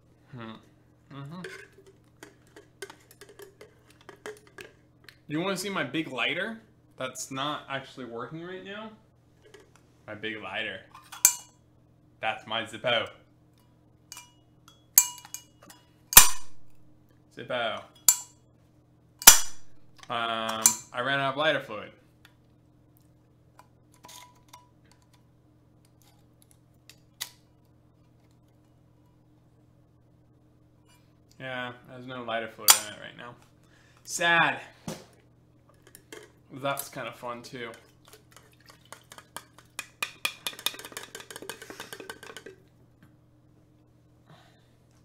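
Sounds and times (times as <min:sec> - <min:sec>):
metal rod clicking and clinking: 0:11.2 - 0:11.5, 0:14.2 - 0:15.6, 0:18.0 - 0:18.3.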